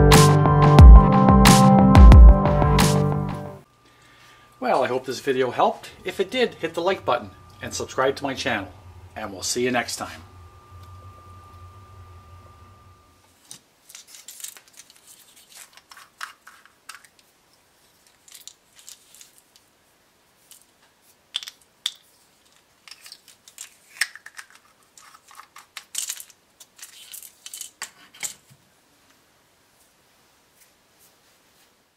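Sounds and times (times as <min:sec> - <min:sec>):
plastic clicking and rattling: 0:21.4 - 0:28.4.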